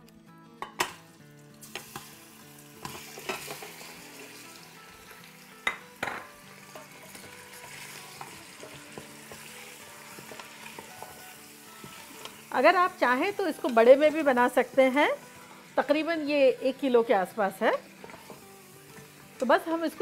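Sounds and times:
meat sizzling in hot oil: 1.0s - 20.0s.

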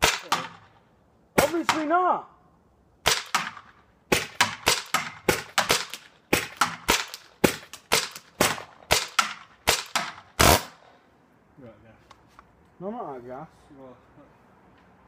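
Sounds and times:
paintball marker firing: 3.0s - 10.9s.

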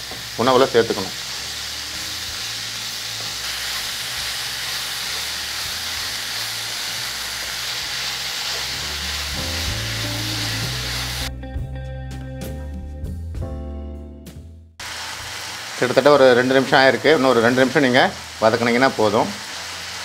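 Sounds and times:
oil sizzling in a pan: 0.0s - 11.3s, 14.8s - 20.0s
background music: 5.2s - 14.8s.

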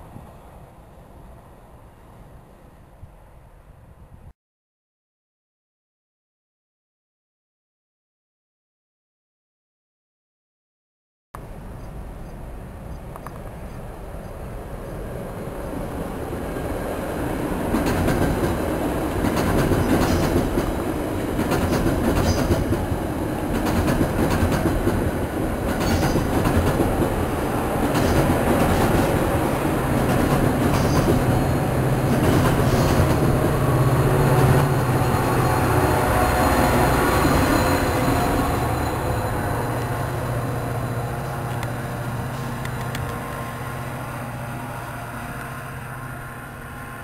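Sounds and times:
diesel locomotive engine drone: 0.0s - 4.3s, 11.4s - 47.0s
train cars rumbling past: 11.4s - 47.0s
wheels clicking over rail joints: 17.7s - 27.2s, 27.8s - 29.3s, 29.9s - 33.4s.

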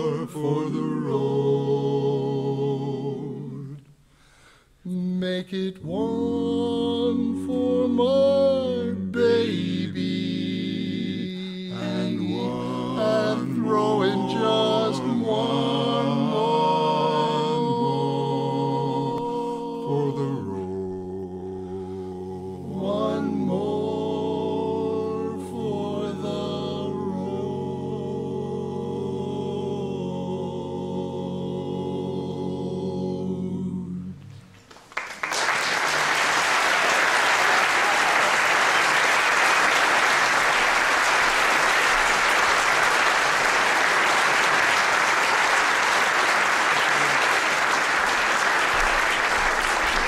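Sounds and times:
male vocal quartet harmonizing: 0.0s - 34.5s
audience applauding: 34.7s - 50.0s.

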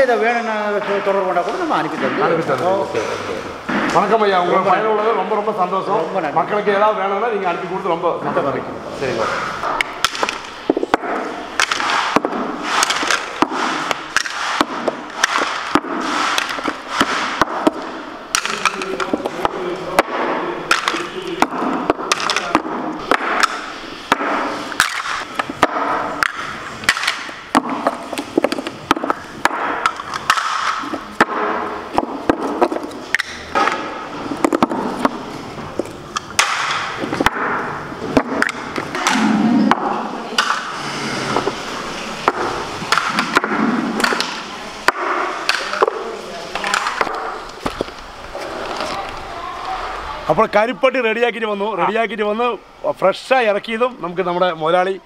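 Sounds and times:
coconut shells knocking together: 9.6s - 35.2s, 35.8s - 40.7s, 42.2s - 48.0s.

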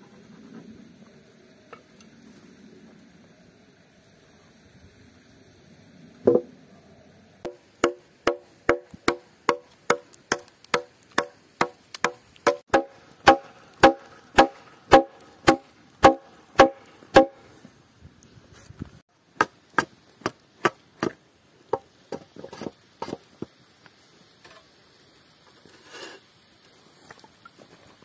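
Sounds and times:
hatchet chopping log: 7.5s - 17.4s, 19.4s - 22.3s.

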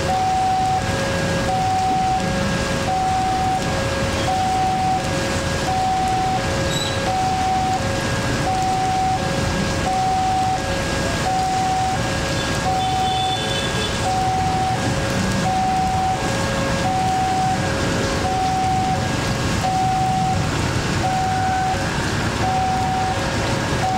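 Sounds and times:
heavy rain hissing: 0.0s - 23.9s
road traffic: 0.0s - 23.9s.

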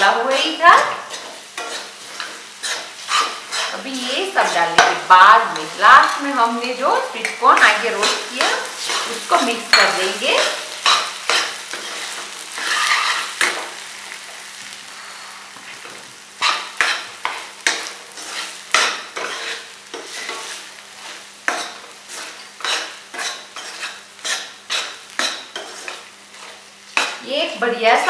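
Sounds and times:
frying sizzle: 0.0s - 28.0s
metal spoon scraping a pan: 0.7s - 6.5s, 7.2s - 13.9s, 15.0s - 27.2s.

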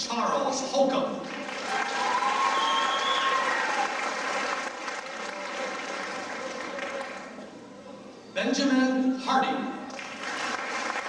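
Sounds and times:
audience applauding: 1.3s - 7.4s, 9.9s - 11.0s.

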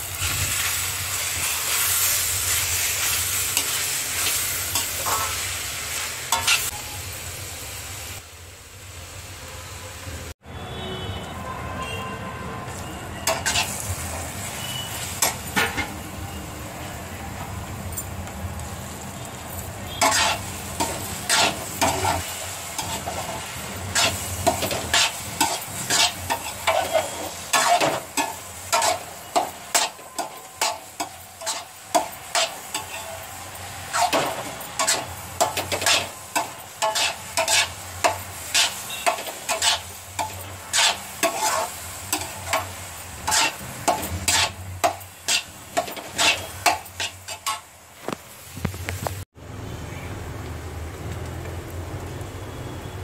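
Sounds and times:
frying sizzle: 0.0s - 10.4s, 12.6s - 53.0s
metal spatula scraping pan: 6.3s - 6.7s, 13.2s - 13.9s, 14.6s - 16.0s, 19.9s - 47.7s.

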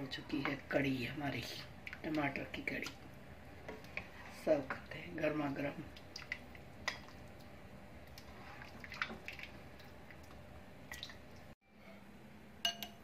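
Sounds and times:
liquid sloshing and dripping: 5.9s - 11.6s.

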